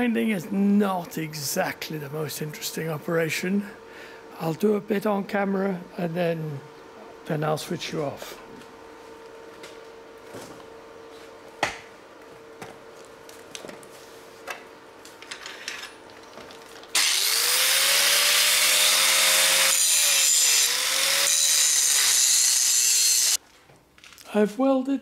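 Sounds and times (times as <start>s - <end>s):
faint steady hum: 0.0s - 17.0s
angle grinder grinding metal: 16.9s - 23.4s.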